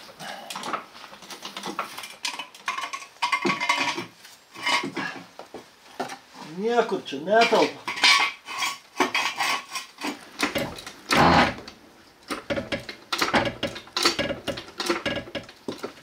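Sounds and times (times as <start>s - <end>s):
metal tools clanking on car parts: 0.5s - 5.2s, 7.3s - 10.9s, 12.3s - 16.0s.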